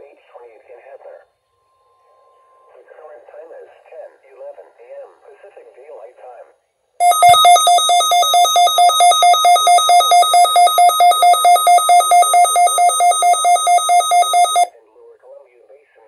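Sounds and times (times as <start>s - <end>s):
alert radio alarm beeping rapidly: 7.0s - 14.7s.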